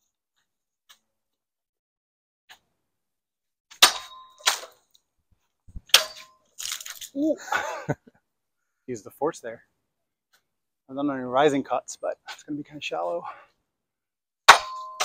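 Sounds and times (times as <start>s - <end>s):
sword blade clinking: 5.9s - 7.0s.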